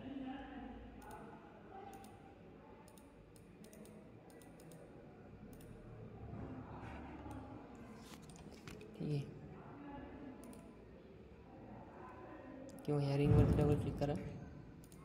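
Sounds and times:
faint computer mouse clicks: 0:01.9 - 0:02.2, 0:02.9 - 0:04.9, 0:05.5 - 0:05.8, 0:10.4 - 0:10.7.

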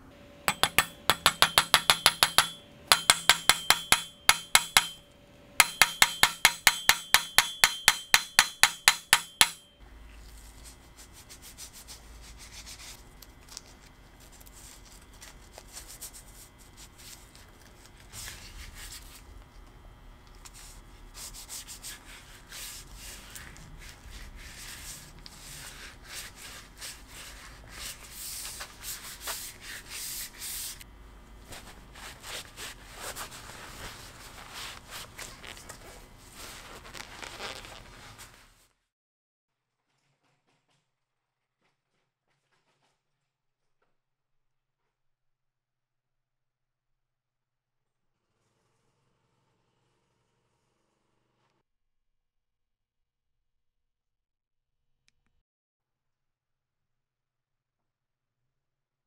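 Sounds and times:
hammer striking steel wedge: 0:00.4 - 0:09.8
gloved hands rubbing wooden handle: 0:00.5 - 0:05.0, 0:05.6 - 0:09.6, 0:20.5 - 0:30.8, 0:31.5 - 0:38.5.

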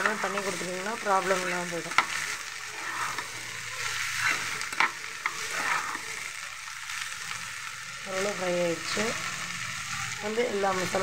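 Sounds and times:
spatula scraping pan: 0:00.0 - 0:06.3
onions sizzling in oil: 0:00.0 - 0:11.0.

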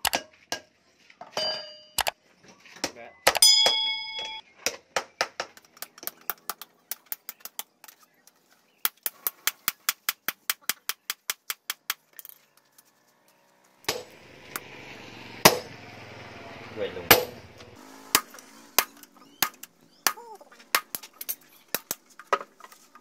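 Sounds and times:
hammer beating metal on anvil: 0:03.3 - 0:04.4, 0:13.9 - 0:14.2, 0:15.4 - 0:15.7, 0:17.1 - 0:17.5.

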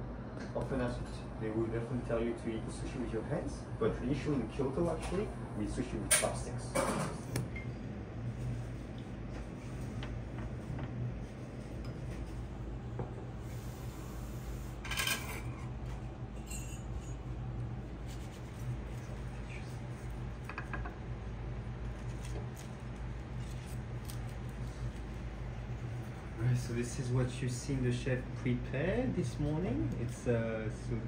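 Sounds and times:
steady low hum: 0:00.0 - 0:31.0
utensils and dishes clinking: 0:14.8 - 0:15.7, 0:16.4 - 0:17.2.

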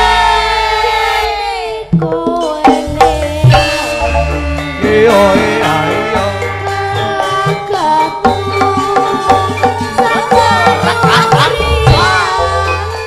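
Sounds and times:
gamelan ensemble playing: 0:00.0 - 0:13.0
hand drum beating: 0:01.9 - 0:12.6
gliding vocal-like tones: 0:02.8 - 0:13.0.

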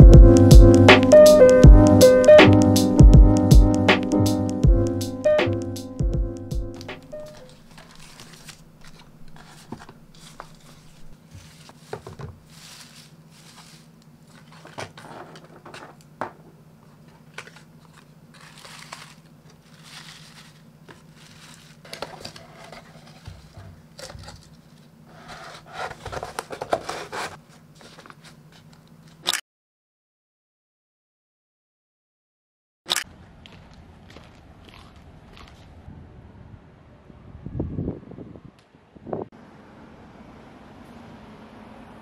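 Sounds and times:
paper packaging rustling: 0:06.8 - 0:29.2.

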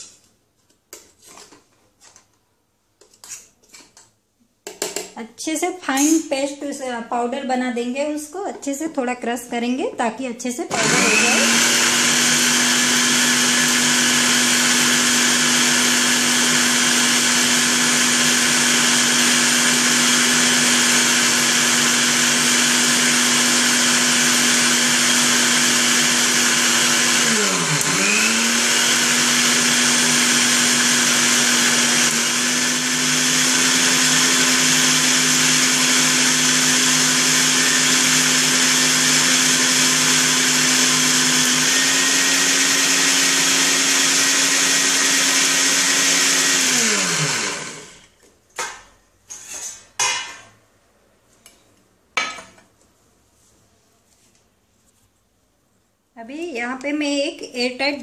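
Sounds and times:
mixer grinder motor whine: 0:10.7 - 0:48.1.

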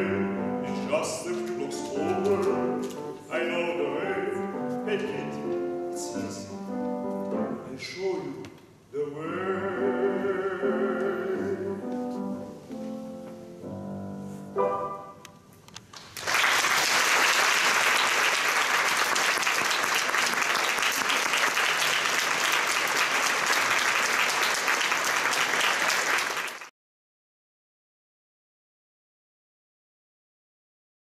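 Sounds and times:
grand piano playing: 0:00.0 - 0:15.6
audience applauding: 0:15.9 - 0:26.7.

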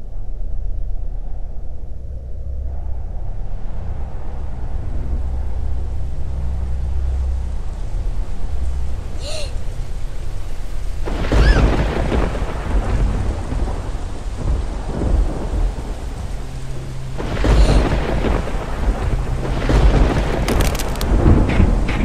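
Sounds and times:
steady rain: 0:02.5 - 0:22.0
thunder: 0:11.0 - 0:22.0.

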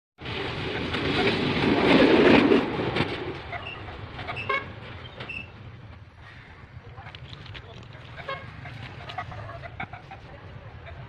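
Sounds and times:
locomotive running along track: 0:00.2 - 0:11.0
locomotive horn toot: 0:04.3 - 0:05.5, 0:08.2 - 0:08.7.

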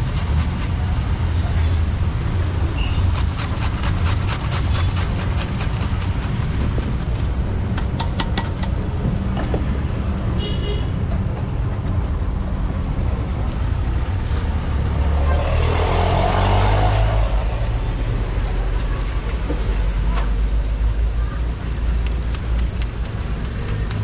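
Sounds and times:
traffic engine rumble: 0:00.0 - 0:24.0
car horn toot: 0:10.4 - 0:11.0
vehicle passing: 0:11.6 - 0:20.5.

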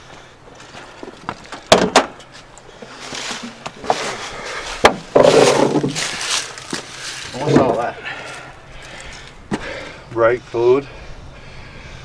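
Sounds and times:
sharp clunks and knocks: 0:01.6 - 0:02.2, 0:04.8 - 0:06.0.

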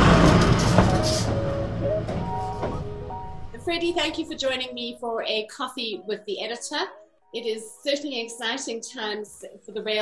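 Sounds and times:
loud rumbling whoosh: 0:00.0 - 0:04.4
short musical notes: 0:00.0 - 0:05.1.

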